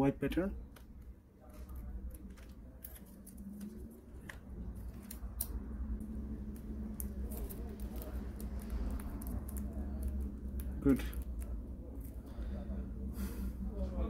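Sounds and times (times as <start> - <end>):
low steady hum: 0.0 - 14.0
tape peeling clicks and crinkles: 0.7 - 12.2.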